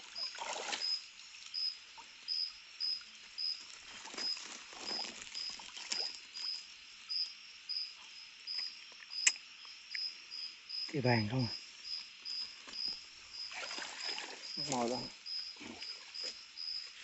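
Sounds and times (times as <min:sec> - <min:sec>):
water splashing and dripping: 0:00.0 - 0:06.8, 0:12.1 - 0:17.0
insect chirping: 0:00.0 - 0:17.0.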